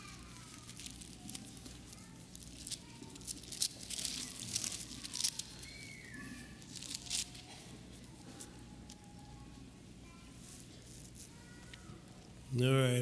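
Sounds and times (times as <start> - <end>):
book pages turning: 0.0 - 9.3.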